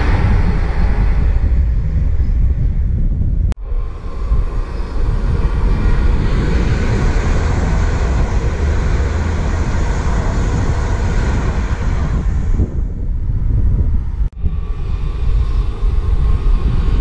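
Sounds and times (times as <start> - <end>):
rushing air: 0.0 - 17.0
train wheels on rails: 3.6 - 13.0.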